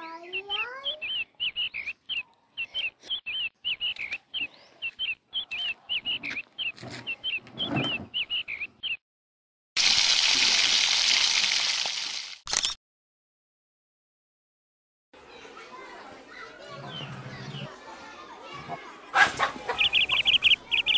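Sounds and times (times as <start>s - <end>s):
small bird chirping: 0.0s - 9.0s, 19.7s - 20.9s.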